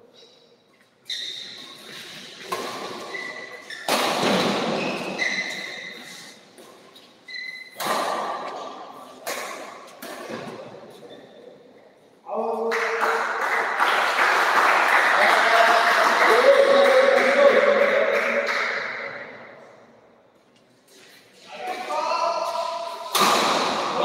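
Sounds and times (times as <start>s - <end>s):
shoes squeaking on court: 0.2s - 11.6s.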